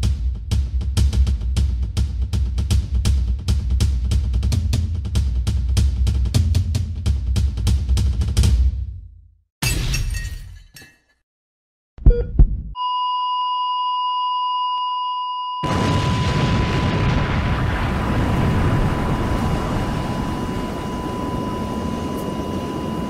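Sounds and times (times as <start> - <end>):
high-pitched beep tone: 12.1 - 15.7
loud crashing impacts: 15.7 - 20.2.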